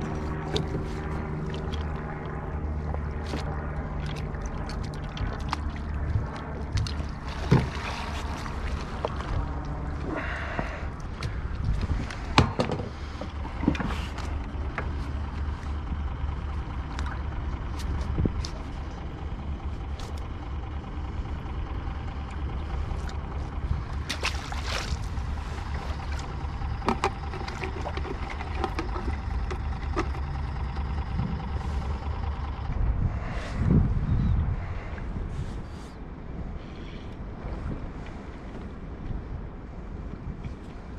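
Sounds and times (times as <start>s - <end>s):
low motor hum: 0.0s - 40.9s
faint steady tones: 25.0s - 33.2s.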